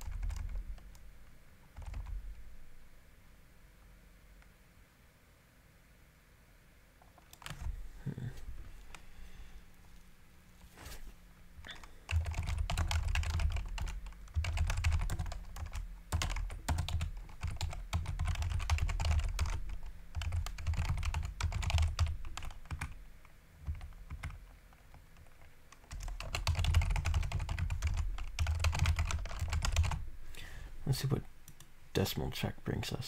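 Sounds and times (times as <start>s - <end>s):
computer keyboard typing: 0.0s - 1.0s, 1.7s - 2.2s, 11.6s - 23.0s, 23.6s - 30.0s.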